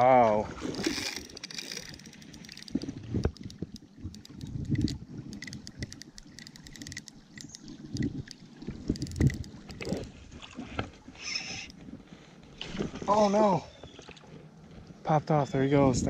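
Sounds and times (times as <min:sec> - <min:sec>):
water splashing: 0:00.0 - 0:11.8
fishing reel clicking and rattling: 0:00.8 - 0:10.1.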